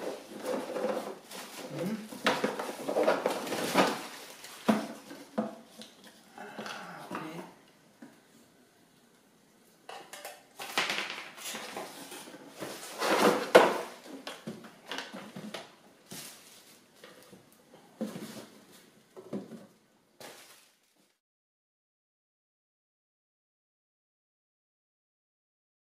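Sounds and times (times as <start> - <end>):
boxes and parts set down: 0.0 - 5.8, 10.6 - 17.2, 18.0 - 18.6, 19.2 - 20.8
plastic wrapping rustling: 0.0 - 6.2, 10.6 - 21.2.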